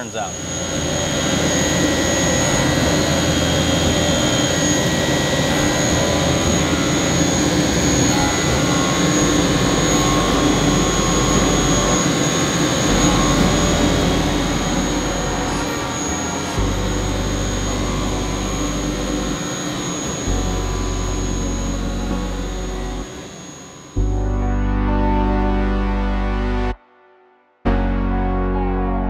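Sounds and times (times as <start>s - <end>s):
lathe spindle and coolant whir: 0.0s - 24.5s
high steady whine: 0.0s - 26.8s.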